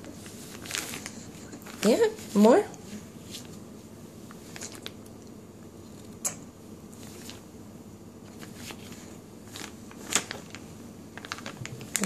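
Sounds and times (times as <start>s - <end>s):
low room noise: 0.0s - 12.0s
baby eating soft smacks: 4.3s - 7.1s.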